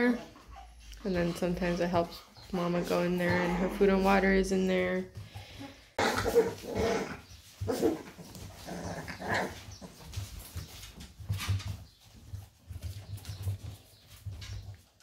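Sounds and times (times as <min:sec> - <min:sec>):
puppies whimpering and squeaking: 0:06.3 - 0:14.9.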